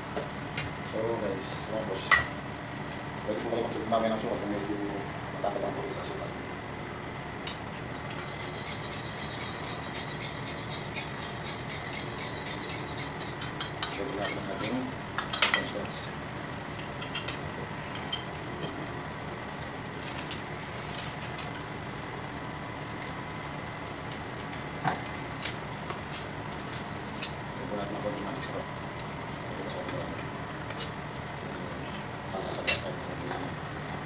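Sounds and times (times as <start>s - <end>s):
metal spoon scraping a pot: 8.0s - 14.8s.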